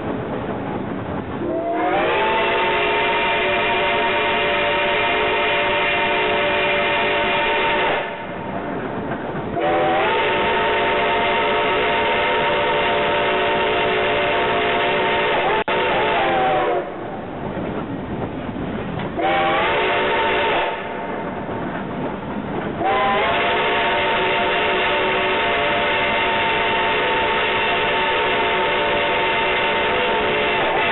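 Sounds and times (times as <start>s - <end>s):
train running along track: 0.0s - 30.9s
steam locomotive whistle blasts: 1.4s - 8.3s, 9.6s - 17.0s, 19.2s - 21.0s, 22.8s - 30.9s.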